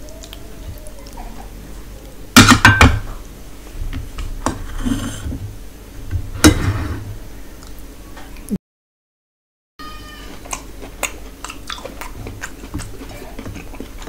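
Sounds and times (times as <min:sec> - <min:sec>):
dish scraping on table: 0:04.5 - 0:05.4, 0:06.4 - 0:07.1.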